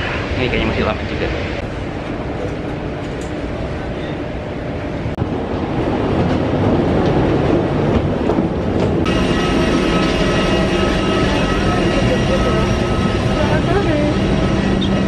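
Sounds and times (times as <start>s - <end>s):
jet airliner rumble and hum: 0.0s - 15.0s
high whining tones: 9.0s - 15.0s.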